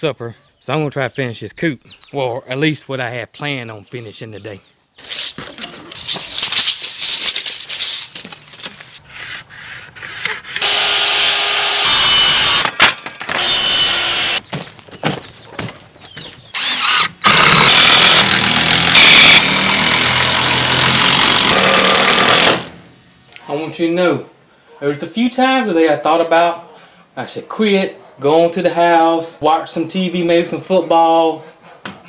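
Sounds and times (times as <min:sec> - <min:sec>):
circular saw cutting wood: 0:10.0 - 0:12.7, 0:13.4 - 0:14.4, 0:16.6 - 0:22.7.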